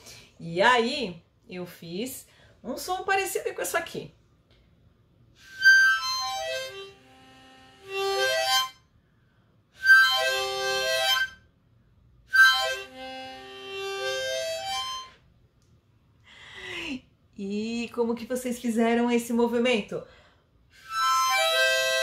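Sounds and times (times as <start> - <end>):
harmonica playing: 5.4 - 9.0, 9.7 - 11.6, 12.2 - 15.4, 20.7 - 22.0.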